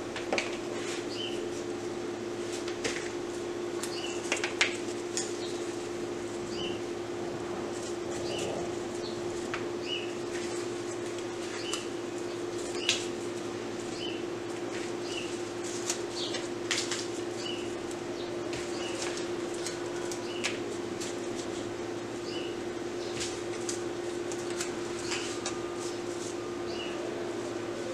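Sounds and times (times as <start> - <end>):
steady hum: 0.0 - 27.9
stems clicking and leaves rustling: 2.4 - 6.8, 7.7 - 22.4, 23.0 - 27.9
bird chirping: 6.5 - 6.8, 8.2 - 9.2, 9.8 - 10.2, 11.5 - 13.0, 13.9 - 14.2, 26.7 - 27.0.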